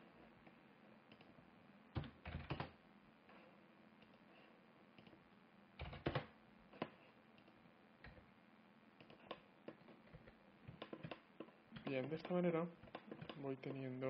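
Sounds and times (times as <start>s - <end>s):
keyboard and mouse clicks: 1.1s - 1.3s, 5.0s - 5.2s, 9.0s - 13.5s.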